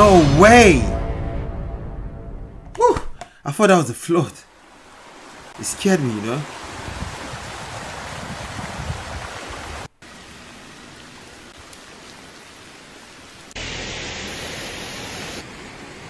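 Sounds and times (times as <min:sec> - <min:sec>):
floodwater rushing: 0:02.8 - 0:16.0
loud hiss: 0:13.6 - 0:15.4.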